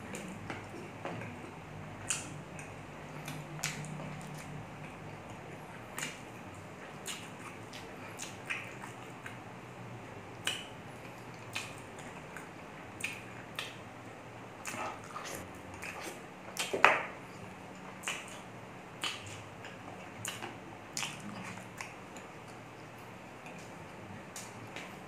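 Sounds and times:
person chewing: 0.0 - 9.4, 10.3 - 13.8, 14.6 - 25.0
wet lip smacks: 11.5 - 13.8, 19.0 - 22.0.

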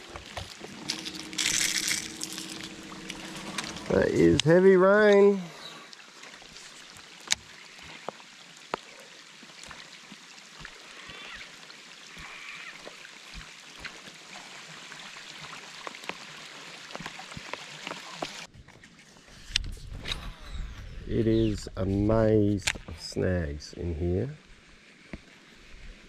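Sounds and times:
river water hissing: 0.0 - 18.5.

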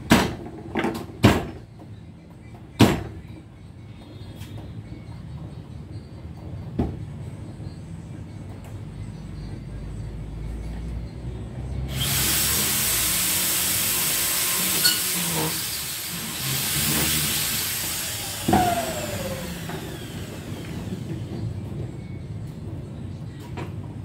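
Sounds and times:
power tool whirring and grinding: 11.9 - 21.3.

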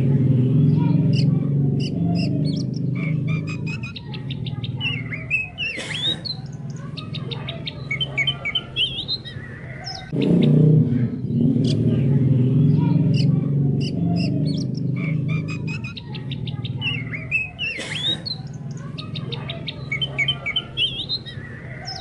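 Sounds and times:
bird chirping and whistling: 0.6 - 10.6, 12.7 - 22.0
low pulsing chorus: 8.8 - 17.6.

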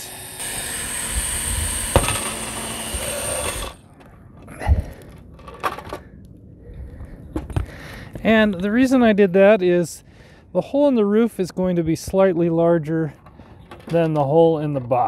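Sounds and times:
cordless drill running: 0.0 - 3.8
knocks and handling sounds: 3.9 - 6.1, 13.1 - 15.0.

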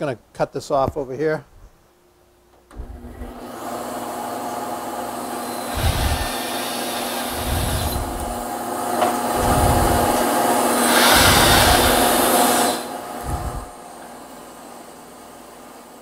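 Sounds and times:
bandsaw motor humming: 2.7 - 14.2
bandsaw cutting wood: 2.9 - 13.8.

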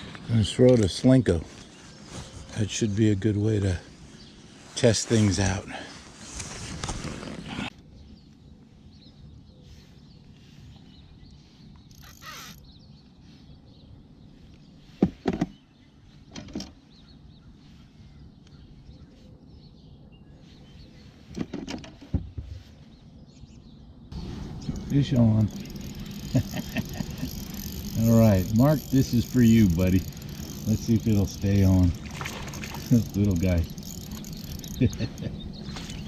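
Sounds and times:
fishing tackle knocks and clatters: 30.0 - 36.0.

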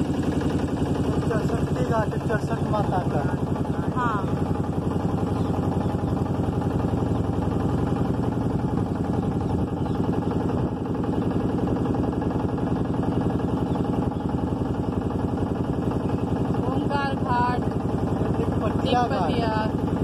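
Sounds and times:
motorboat engine pulsing: 0.0 - 20.0.

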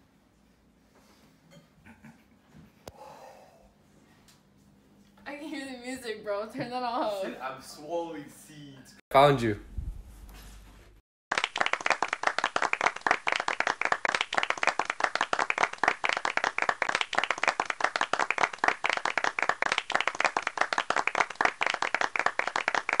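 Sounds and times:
hands clapping: 11.3 - 23.0.

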